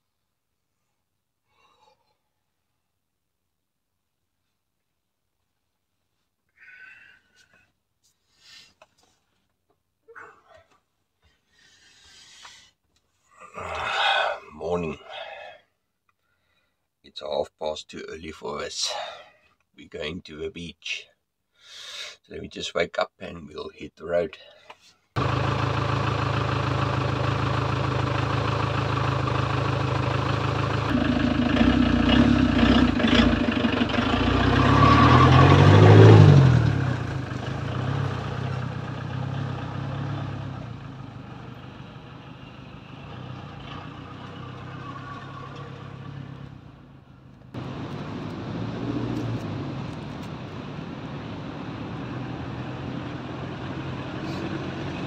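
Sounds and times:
van engine idling and pulling away: 25.2s - 55.0s.

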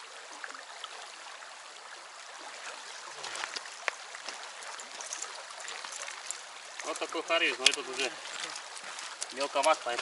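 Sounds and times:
river rushing over stones: 0.0s - 10.0s.

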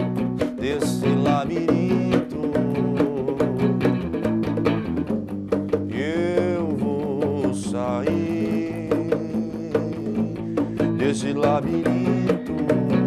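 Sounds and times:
electric bass: 0.0s - 5.9s
electric guitar: 0.0s - 13.0s
hand drum strikes: 0.0s - 13.0s.

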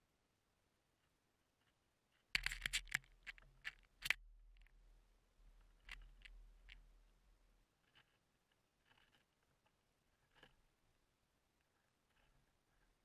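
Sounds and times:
birds pecking on wooden rail: 2.4s - 4.2s.

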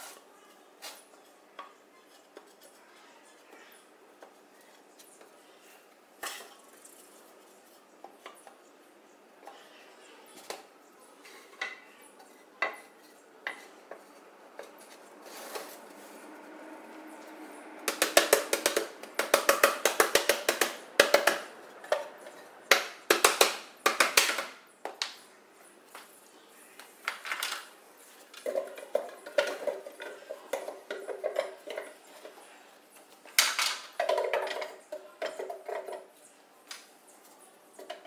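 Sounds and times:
wooden boards knocking: 17.8s - 22.1s, 22.7s - 25.0s.

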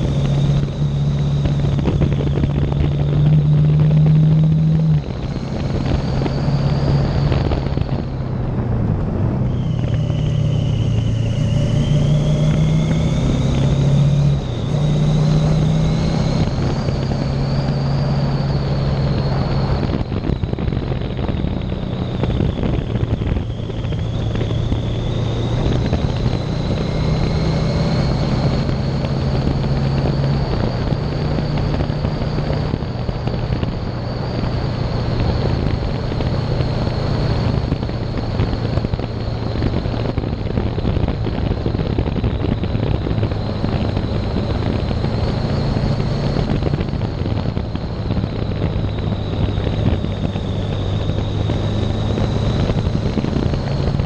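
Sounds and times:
motorcycle engine running: 0.0s - 54.0s
wind noise on microphone: 0.0s - 54.0s.

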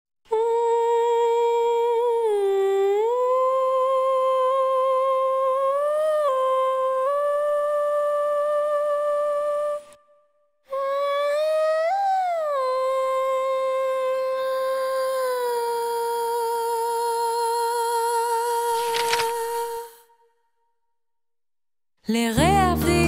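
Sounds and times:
person humming a slow melody: 0.3s - 10.0s.

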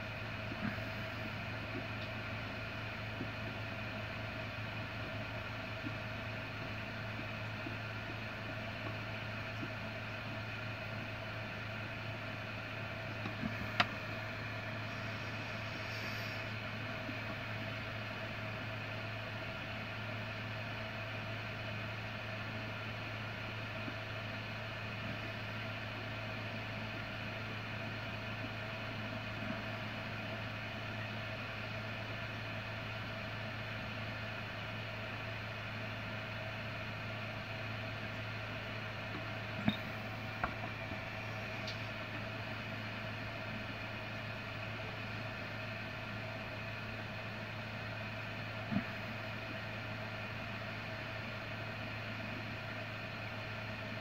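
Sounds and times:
machine humming: 0.0s - 18.9s, 36.2s - 52.4s.

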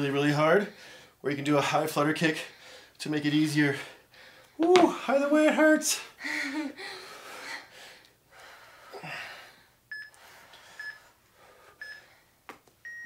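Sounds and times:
person breathing hard: 2.5s - 3.0s, 3.8s - 4.6s, 6.1s - 12.4s.

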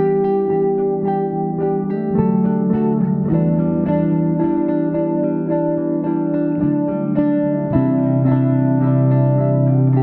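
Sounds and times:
plucked guitar music: 0.0s - 10.0s.

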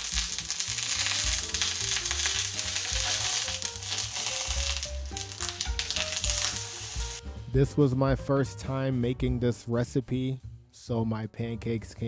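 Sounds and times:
batter sizzling in butter: 0.0s - 7.2s
soft background music: 0.0s - 12.0s.

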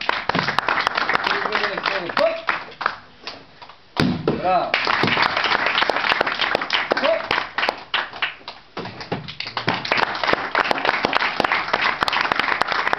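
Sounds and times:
crowd clapping: 0.0s - 3.0s, 4.7s - 12.9s.

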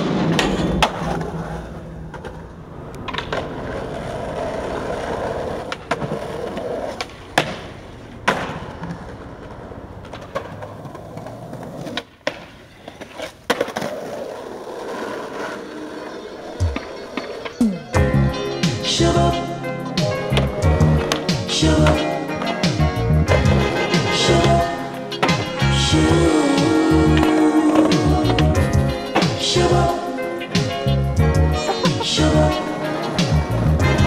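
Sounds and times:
skateboard popping and landing: 0.0s - 17.9s
skateboard wheels rolling on pavement: 0.0s - 18.0s.

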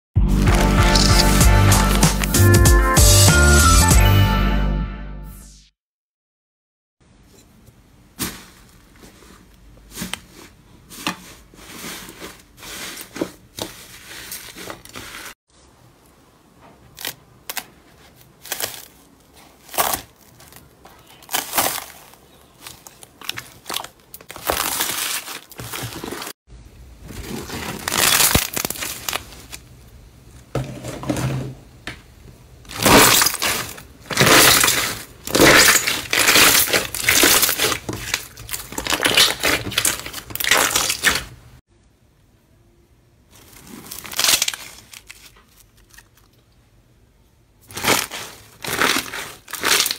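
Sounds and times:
slime squishing and crackling: 0.4s - 2.3s, 16.9s - 26.3s, 27.0s - 29.6s, 32.7s - 41.4s, 43.4s - 46.4s, 47.6s - 49.9s.

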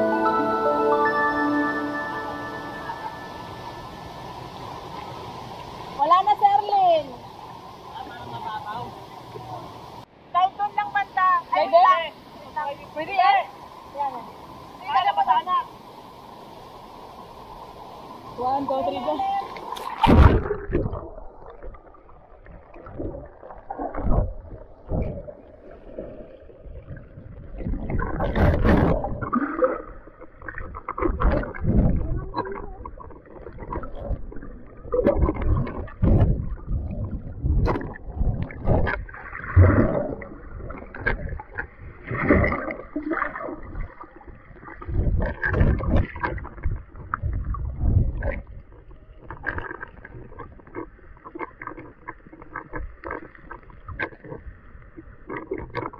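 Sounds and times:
underwater water churning: 19.2s - 55.9s
dull underwater thumps: 30.5s - 42.8s, 44.8s - 54.4s.

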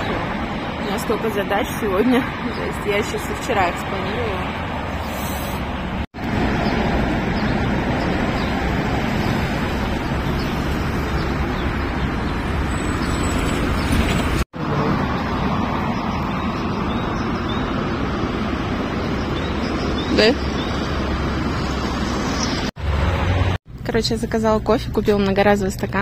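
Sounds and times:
cars driving past: 0.0s - 23.7s.

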